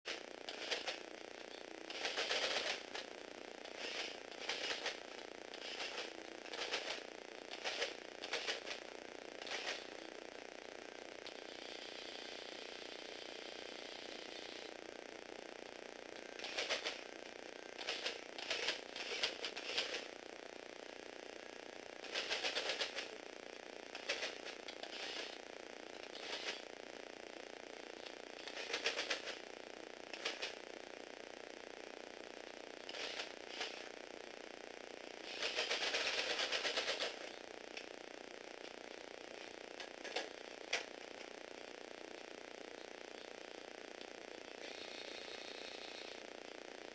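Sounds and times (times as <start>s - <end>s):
plastic gears ratcheting clatter: 0.1s - 1.0s, 1.9s - 3.0s, 3.6s - 8.8s, 16.4s - 17.0s, 17.8s - 20.1s, 22.0s - 23.2s, 23.9s - 25.4s, 26.0s - 26.7s, 28.0s - 29.4s, 30.1s - 30.6s, 35.3s - 37.3s
toy bulldozer tracks clattering: 0.1s - 1.0s, 3.7s - 5.0s, 16.4s - 17.0s, 26.0s - 26.6s, 28.4s - 29.4s, 35.3s - 37.3s.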